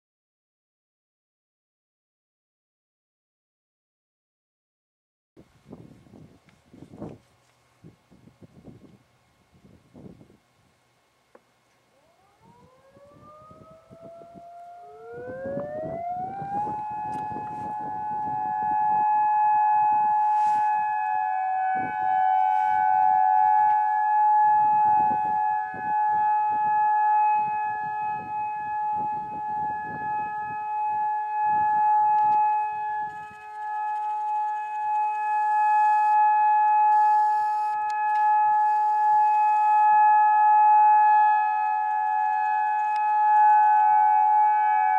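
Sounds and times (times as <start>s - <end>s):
tornado sirens wailing: 11.9s - 44.9s
gusty low rumbling: 15.2s - 19.0s, 24.5s - 26.8s, 27.4s - 30.7s.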